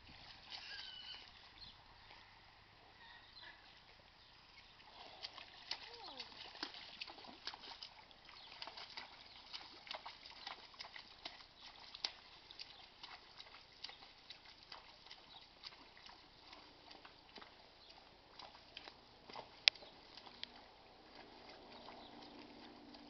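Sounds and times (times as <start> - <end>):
hooves splashing through a stream: 0.0 - 23.0
water pattering: 4.0 - 23.0.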